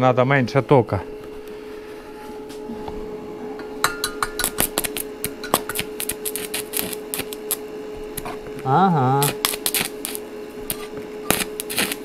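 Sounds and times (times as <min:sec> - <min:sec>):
welding arc crackling and popping: 0:03.8 - 0:12.0.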